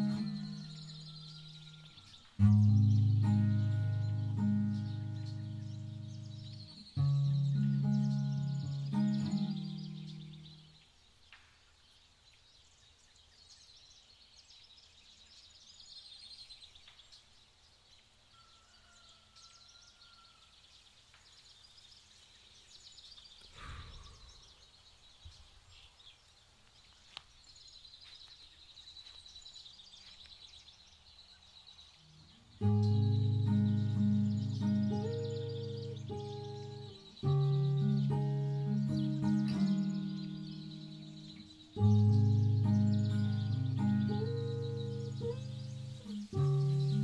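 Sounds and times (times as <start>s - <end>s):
high-pitched chirping: 0.0s - 10.5s, 32.6s - 47.0s.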